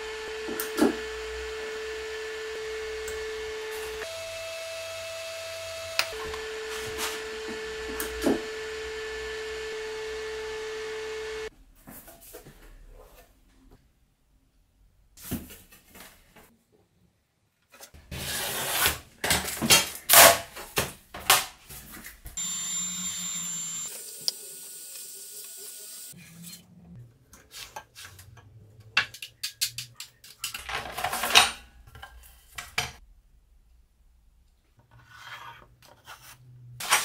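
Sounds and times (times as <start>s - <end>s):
steady machine sound: 22.4s - 26.1s.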